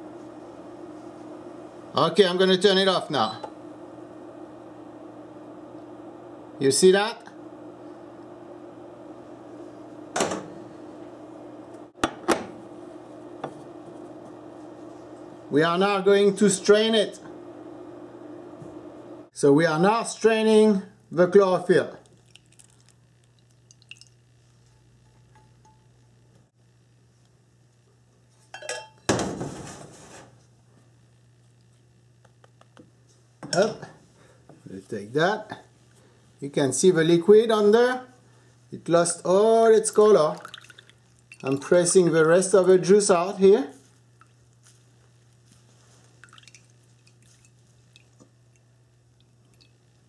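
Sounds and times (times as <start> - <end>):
low steady hum: 0.0 - 50.0
juice dripping into bowl: 21.9 - 26.2, 39.7 - 42.0, 43.8 - 50.0
metal kitchenware clinking: 28.6 - 29.0.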